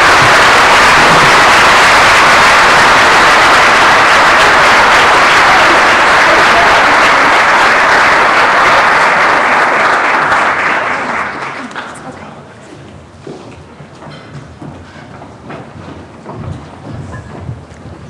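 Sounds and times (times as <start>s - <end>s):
large audience applauding: 0.0s - 12.2s.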